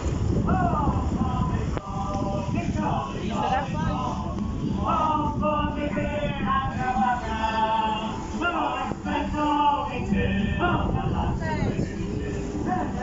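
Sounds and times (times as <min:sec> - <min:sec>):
man singing: 0:00.4 - 0:13.0.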